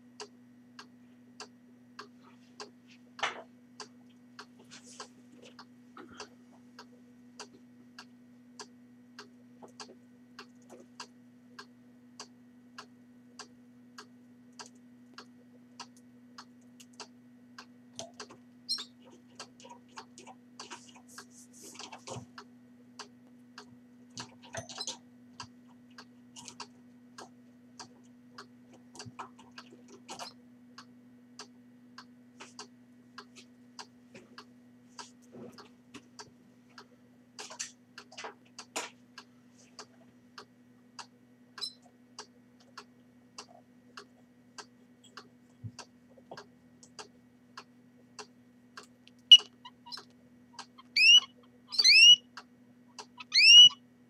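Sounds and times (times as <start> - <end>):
faint steady hum: 0.0 - 54.0
soft clicks and ticks: 0.2 - 50.8
canary chirps: 18.7 - 19.1, 49.3 - 52.3, 53.0 - 53.8.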